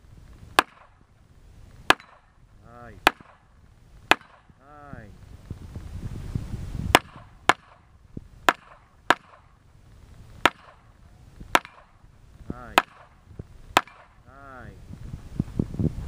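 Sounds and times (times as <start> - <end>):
handgun shots: 3.0 - 3.5, 8.5 - 9.6.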